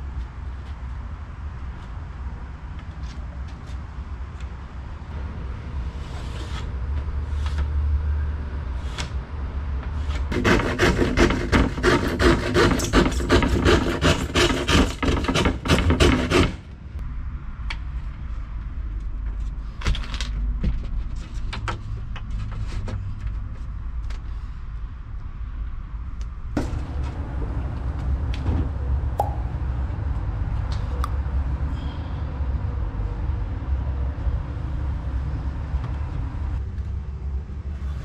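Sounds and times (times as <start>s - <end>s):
hand saw cutting plywood: 10.1s - 16.6s
low rumble: 26.5s - 31.4s.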